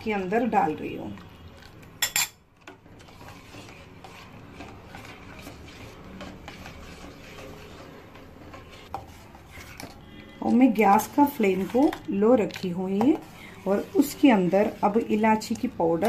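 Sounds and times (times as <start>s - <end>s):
spoon stirring in metal pot: 0.0s - 16.0s
metal spoon clinking: 2.0s - 2.4s.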